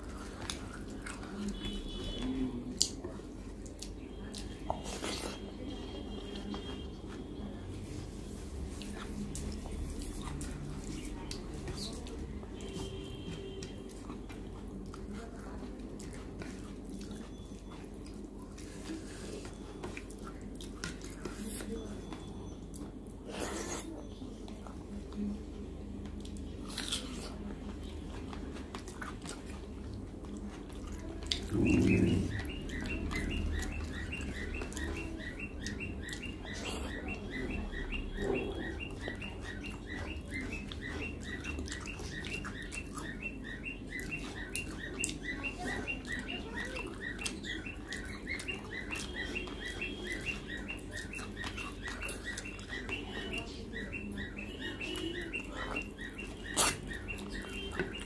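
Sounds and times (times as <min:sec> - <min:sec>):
chewing and mouth sounds: 0:00.0 - 0:25.3, 0:26.0 - 0:58.0
bird chirping: 0:31.4 - 0:58.0.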